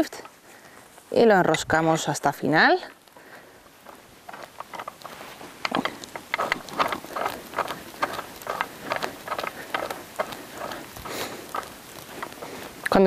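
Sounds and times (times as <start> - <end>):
metal shackle clinking: 3.8 - 13.0.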